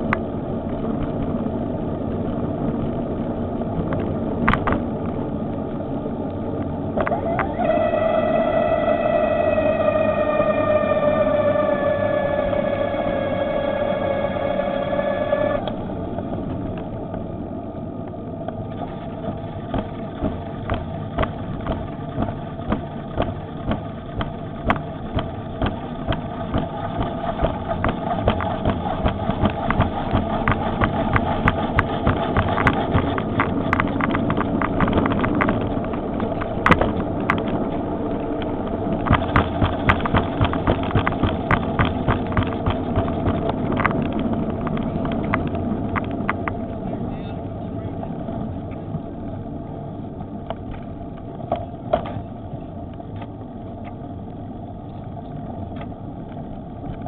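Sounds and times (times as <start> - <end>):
tyres rumbling: 0.0 - 57.0
wind: 0.0 - 57.0
electric bicycle motor whining: 5.4 - 47.0.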